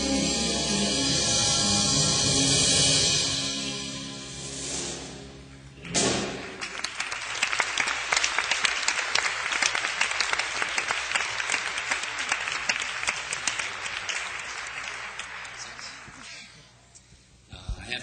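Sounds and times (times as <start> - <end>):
audience applauding: 5.8 - 16.6.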